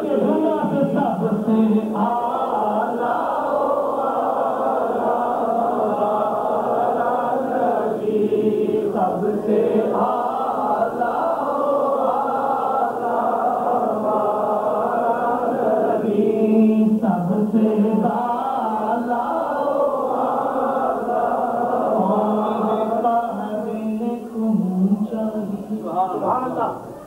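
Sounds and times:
person chanting devotional recitation: 0.0 - 27.0.

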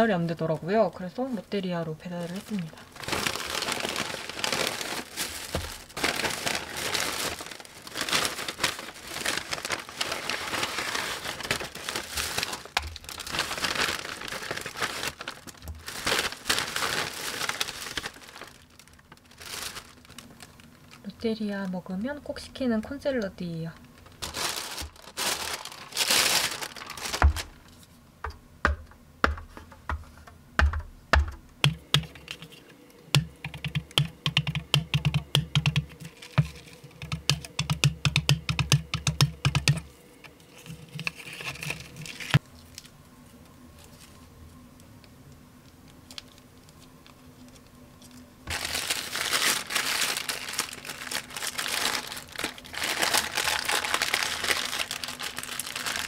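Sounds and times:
paper bag crinkling: 2.1 - 21.2, 23.7 - 27.8, 36.0 - 37.4, 40.4 - 42.9, 46.2 - 56.0
paper wrapper crinkling: 2.1 - 21.2, 23.7 - 27.9, 35.9 - 37.6, 40.4 - 44.2, 45.9 - 56.0.

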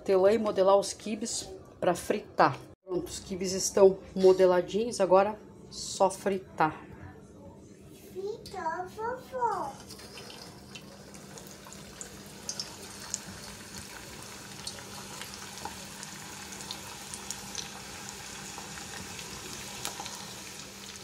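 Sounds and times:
food deep-frying in oil: 9.7 - 21.0.

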